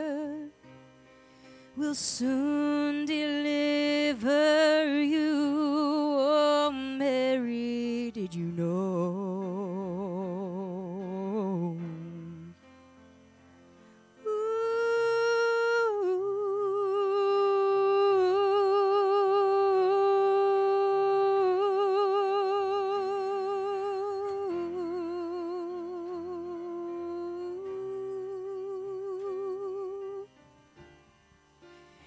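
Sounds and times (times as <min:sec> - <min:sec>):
woman humming: 0:14.3 - 0:30.3.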